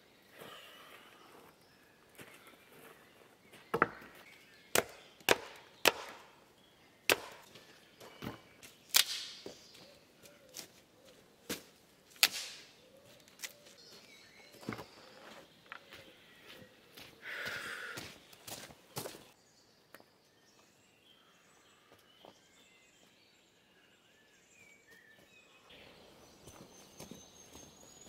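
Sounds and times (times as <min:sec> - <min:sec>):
sharp wooden chops: 0:04.7 - 0:06.4, 0:07.1 - 0:07.5, 0:08.9 - 0:09.5, 0:12.2 - 0:12.7.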